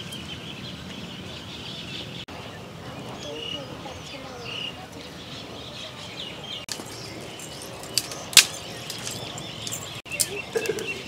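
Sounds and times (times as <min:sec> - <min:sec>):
birds chirping: 0:00.0 - 0:11.0
dry twigs cracking: 0:06.7 - 0:10.8.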